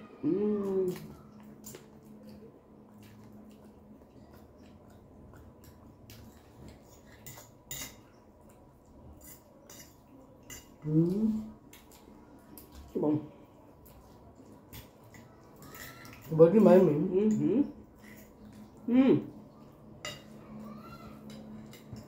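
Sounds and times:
cutlery clinking on plates: 6.1 - 8.2, 20.0 - 22.0.

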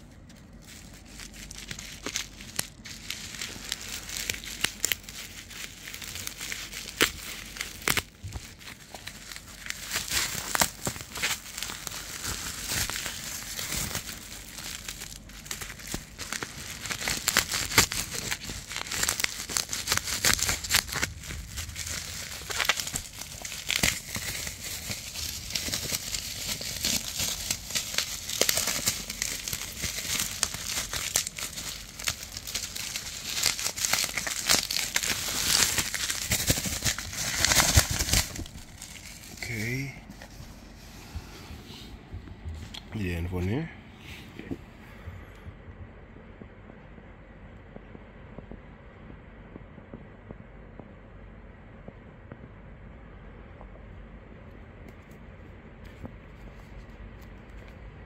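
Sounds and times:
packaging crackles and snaps: 0.0 - 40.6
plastic packaging crinkling: 0.0 - 40.8.

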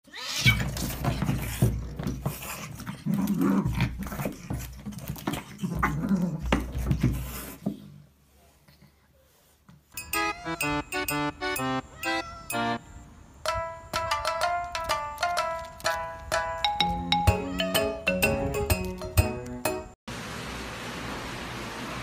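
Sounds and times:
pets growling and snarling: 0.2 - 7.7.

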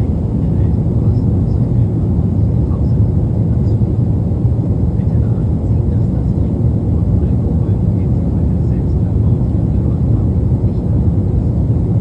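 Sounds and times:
jet airliner cabin noise: 0.0 - 12.0.

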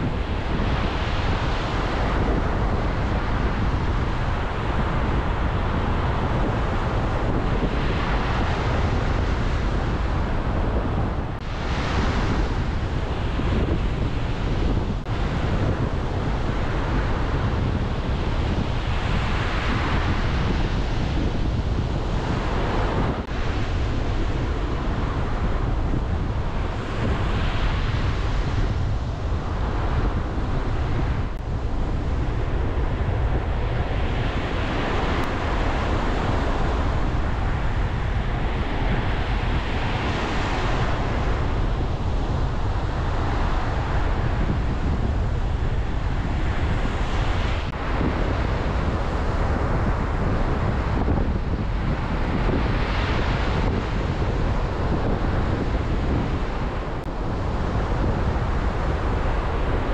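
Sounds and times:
heavy surf breaking on beach: 0.0 - 59.9
storm wind buffeting microphone: 0.0 - 59.9.

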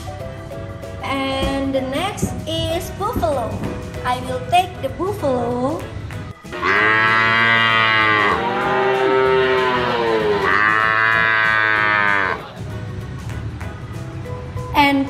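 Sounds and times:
water buffalo bellowing: 6.4 - 12.5.

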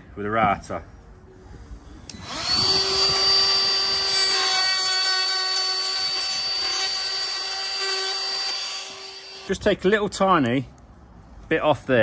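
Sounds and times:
trim router whining: 2.1 - 9.5.

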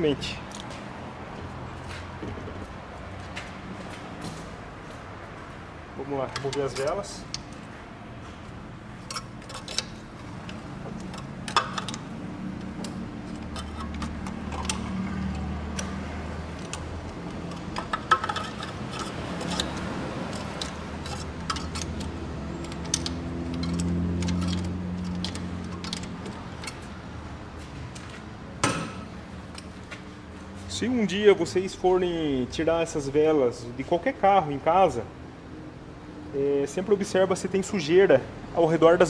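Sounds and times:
socket wrench clicking: 9.1 - 26.8.

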